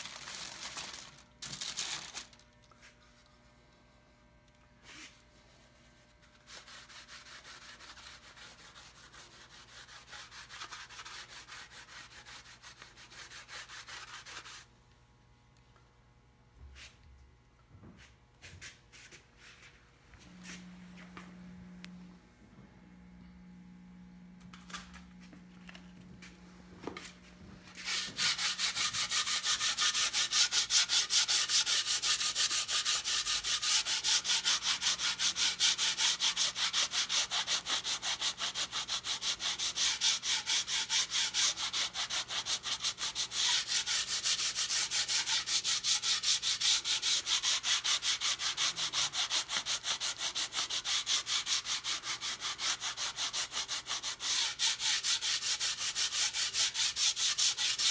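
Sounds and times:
sandpaper rubbing on wood: 6.4s - 14.7s, 27.8s - 57.9s.

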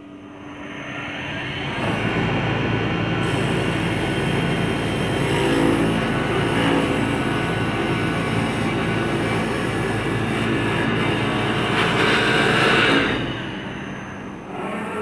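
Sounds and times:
low motor hum: 0.0s - 15.0s
lathe cutter shearing wood: 1.8s - 13.6s.

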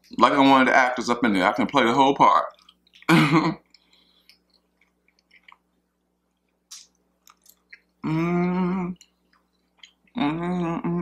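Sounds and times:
wet chewing and mouth clicks: 1.3s - 8.0s, 8.9s - 10.4s
person humming mmm: 8.0s - 9.0s, 10.1s - 11.0s.

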